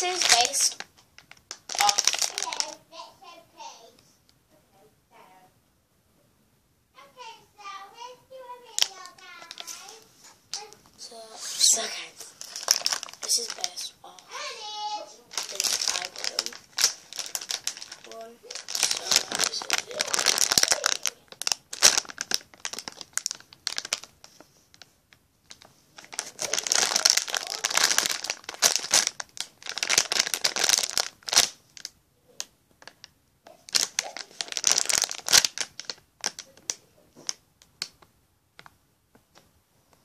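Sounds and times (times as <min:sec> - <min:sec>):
plastic packaging crinkling: 0:00.0 - 0:02.8, 0:08.7 - 0:10.8, 0:11.4 - 0:32.0, 0:32.8 - 0:37.9.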